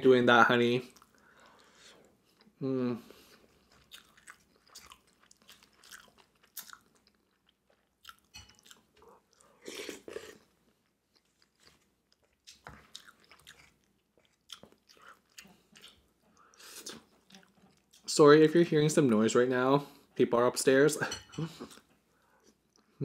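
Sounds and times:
wet chewing sounds: 0:00.8 - 0:18.1.

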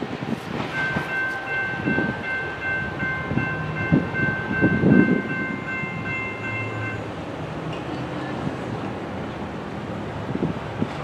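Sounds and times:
freight train rumbling on rails: 0:00.0 - 0:11.0
crossing warning bell ringing: 0:00.6 - 0:08.3.

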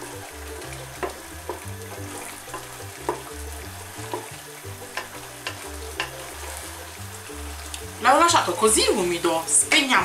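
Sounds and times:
background music with bass line: 0:00.0 - 0:10.0
spoon knocking against pan: 0:00.9 - 0:03.4, 0:04.0 - 0:06.6.

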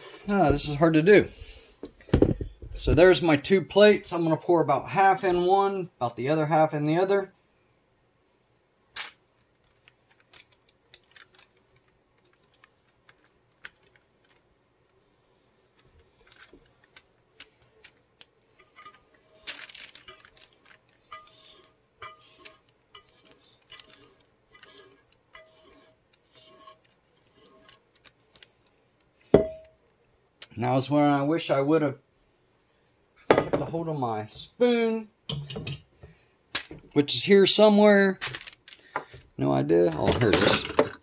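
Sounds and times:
whisk clinking in metal saucepan: 0:21.1 - 0:27.7.

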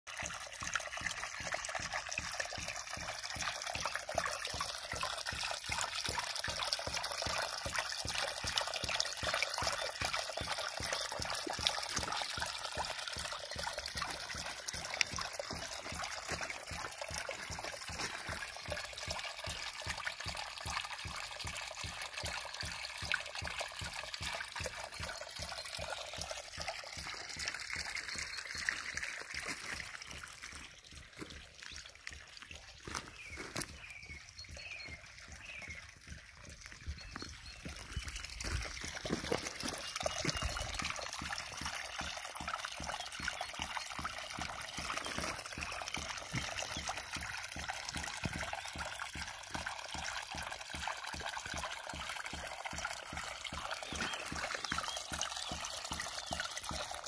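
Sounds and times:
water splashing: 0:00.1 - 0:57.0.

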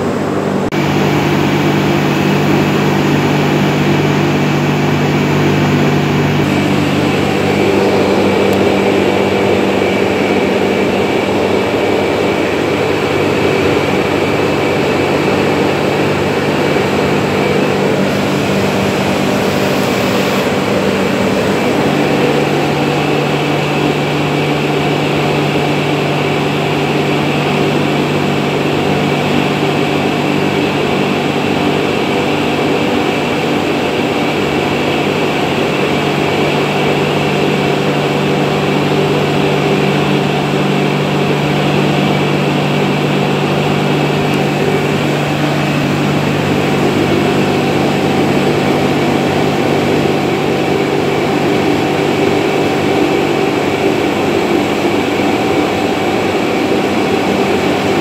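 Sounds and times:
pressure washer motor running: 0:00.0 - 0:58.0.

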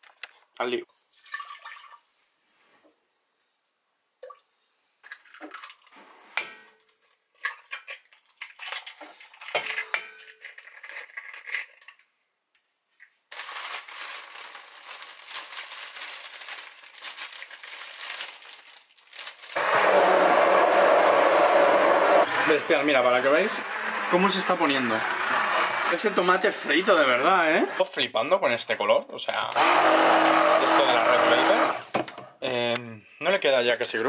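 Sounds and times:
stick blender running: 0:19.6 - 0:27.9, 0:29.5 - 0:32.0.

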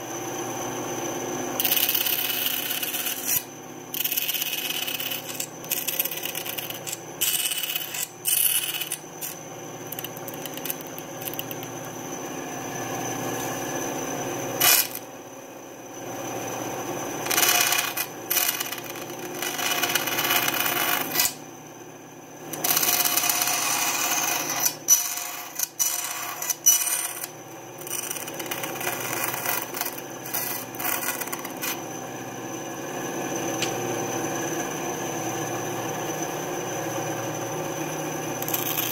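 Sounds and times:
bandsaw cutting plywood: 0:01.6 - 0:11.7, 0:22.6 - 0:31.8.

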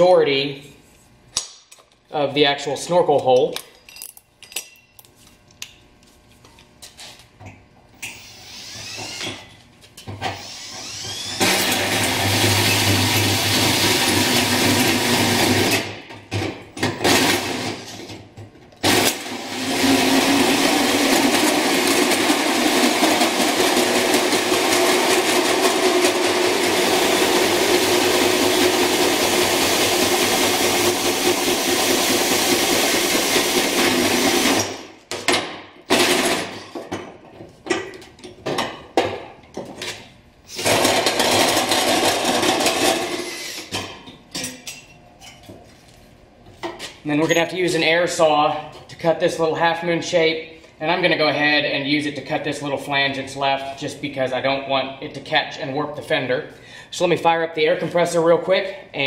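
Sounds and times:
drill hole saw cutting sheet metal: 0:08.0 - 0:09.5, 0:10.2 - 0:15.9, 0:18.8 - 0:34.9, 0:40.5 - 0:43.8.

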